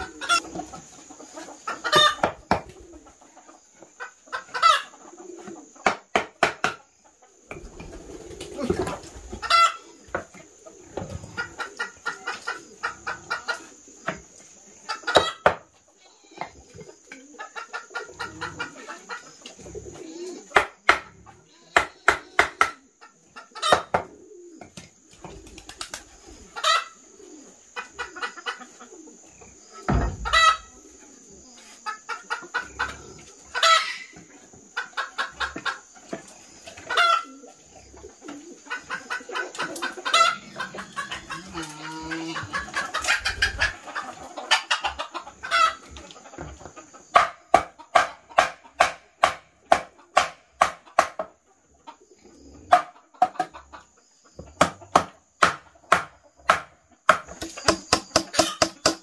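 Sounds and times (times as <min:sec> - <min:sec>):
hens clucking: 0:00.0 - 0:59.0.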